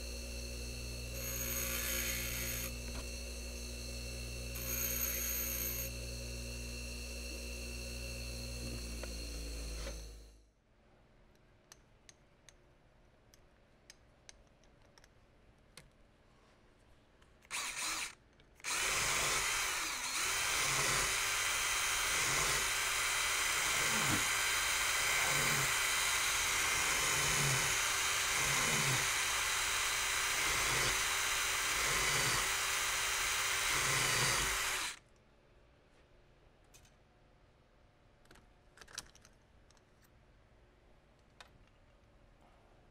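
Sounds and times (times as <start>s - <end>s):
bench grinder running: 0.0s - 10.3s, 18.7s - 35.0s
cordless drill spinning: 0.0s - 10.3s, 17.4s - 35.0s.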